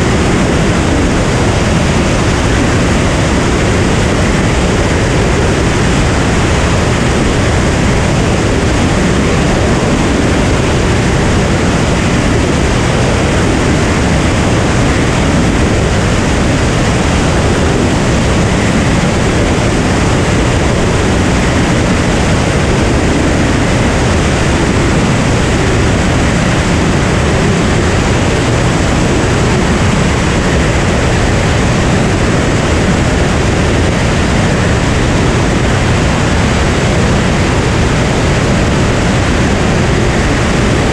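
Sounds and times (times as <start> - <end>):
aircraft engine and propeller: 0.0 - 40.9
rush of airflow: 0.0 - 40.9.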